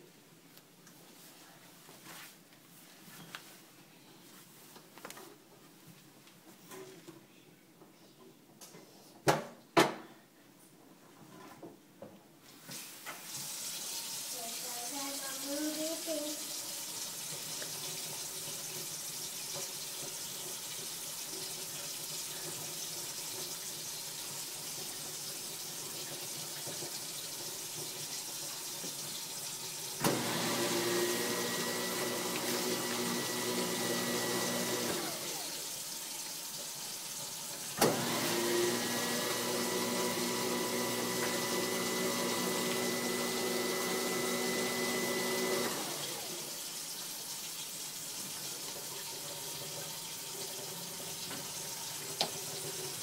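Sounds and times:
water running into sink: 0:12.6 - 0:53.0
garbage disposal humming: 0:13.3 - 0:53.0.

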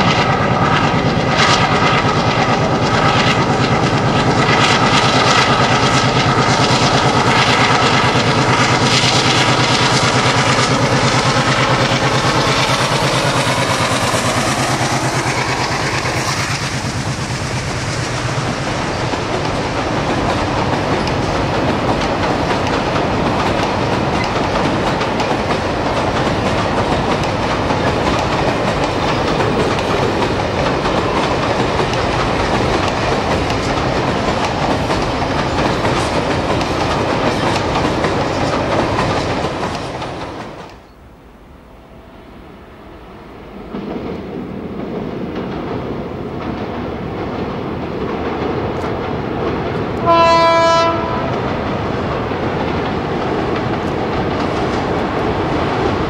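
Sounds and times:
diesel locomotive engine: 0:00.0 - 0:56.0
train wheels rumbling on bridge: 0:00.0 - 0:56.0.

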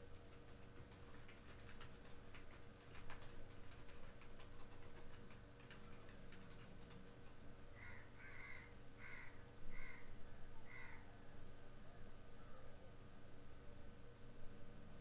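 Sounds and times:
computer keys typing: 0:00.0 - 0:07.4.

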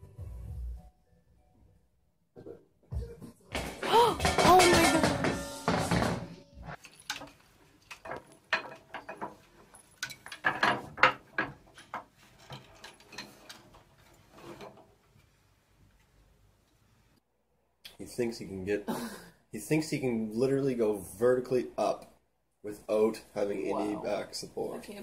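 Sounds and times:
knocks of wooden ladder rungs: 0:03.5 - 0:15.2.

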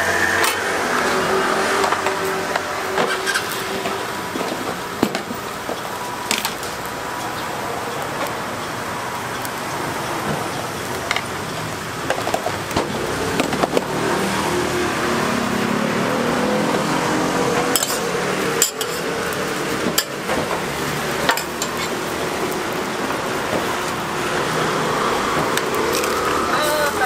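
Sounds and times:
crepes sizzling on griddle: 0:00.0 - 0:27.0
tongs and spatula clinking: 0:17.7 - 0:20.2, 0:21.2 - 0:22.0.

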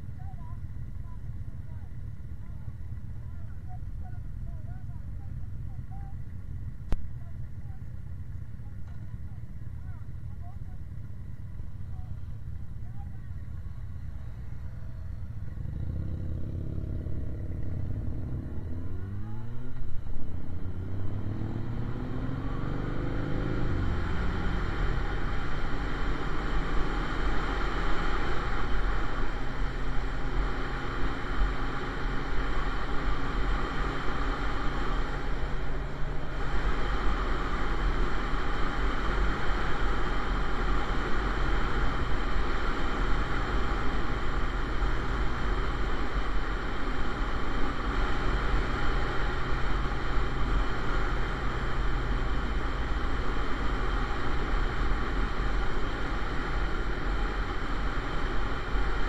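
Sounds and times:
wind and road noise: 0:00.0 - 0:59.0
motorcycle engine accelerating: 0:13.4 - 0:59.0.

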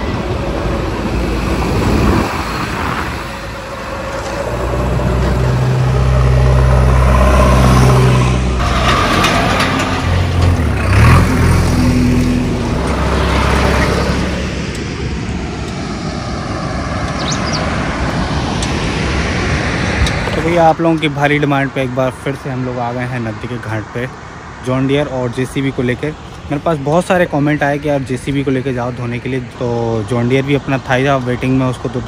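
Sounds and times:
backhoe loader diesel engine: 0:00.0 - 0:17.2
tractor driving past: 0:00.0 - 0:20.6.

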